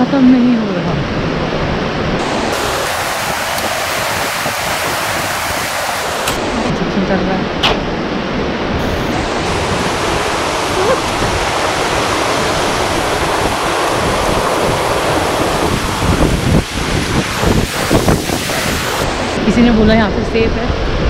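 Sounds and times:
wind buffeting microphone: 0.0s - 21.0s
mountain stream rushing over rocks: 2.2s - 6.7s, 8.8s - 19.6s.

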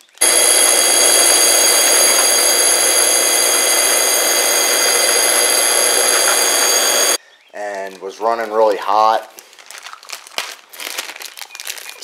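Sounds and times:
pool pump motor whining: 0.2s - 7.2s.

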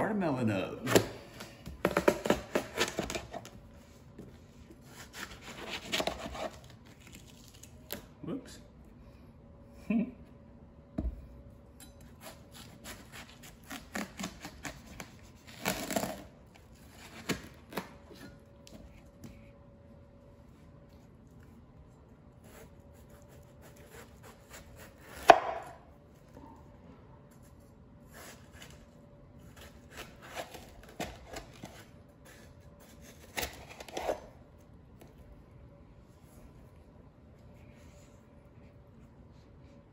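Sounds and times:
knife cutting watermelon: 4.2s - 8.1s, 12.0s - 19.1s, 22.3s - 26.3s, 27.3s - 34.4s.

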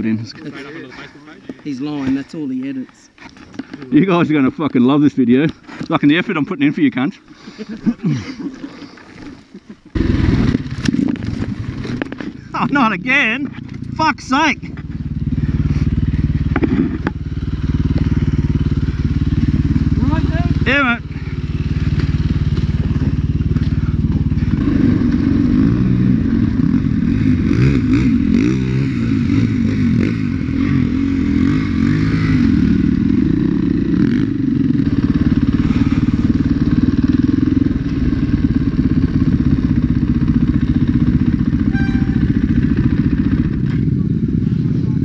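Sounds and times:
dirt bike engine revving: 9.9s - 44.6s.

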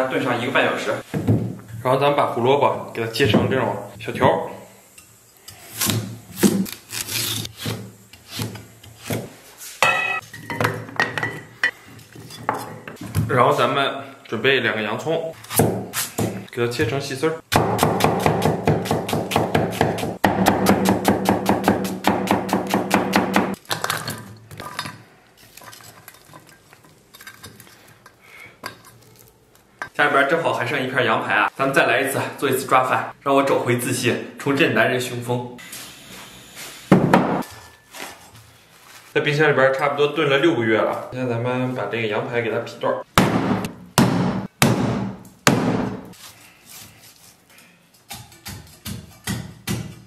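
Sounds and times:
metal bowl ringing and rattling: 9.9s - 10.6s
cleaver chopping on wooden block: 17.5s - 23.6s.

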